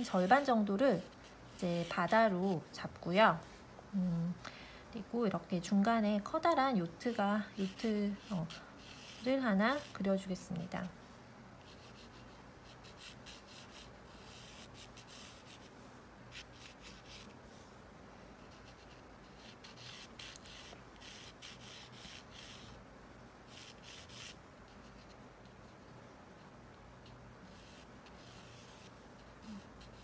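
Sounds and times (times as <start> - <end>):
pencil scratching on paper: 0.0 - 2.4, 7.0 - 10.5, 11.6 - 15.7, 16.3 - 17.4, 18.4 - 22.8, 23.5 - 25.8, 27.0 - 30.0.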